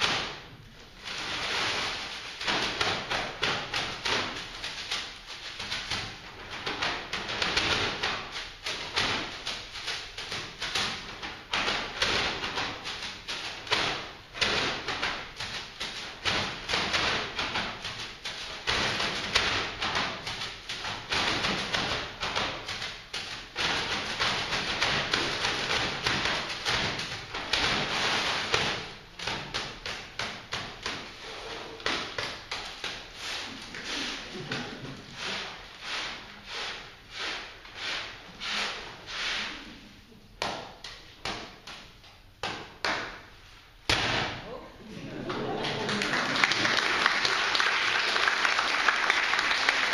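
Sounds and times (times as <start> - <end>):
paper bags crackling rustle: 0.9 - 24.0.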